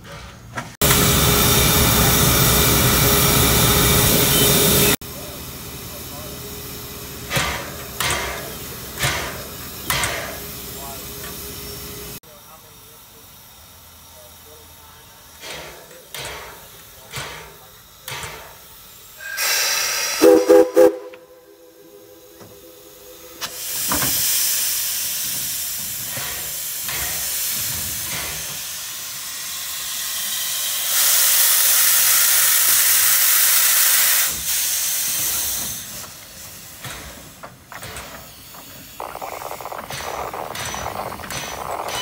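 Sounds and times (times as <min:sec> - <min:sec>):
steam venting hiss: 0:07.4 - 0:42.0
steam whistle blasts: 0:19.2 - 0:24.0.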